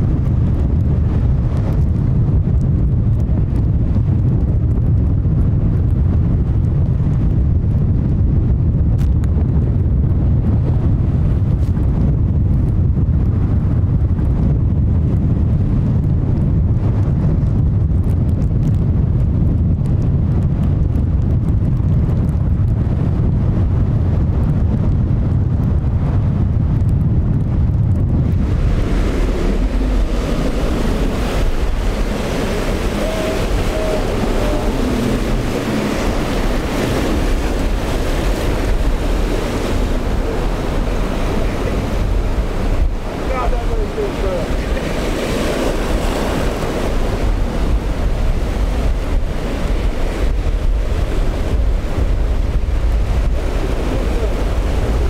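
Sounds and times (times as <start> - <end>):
rough surf: 0.0 - 55.0
wind buffeting microphone: 0.0 - 55.0
waves breaking: 28.0 - 55.0.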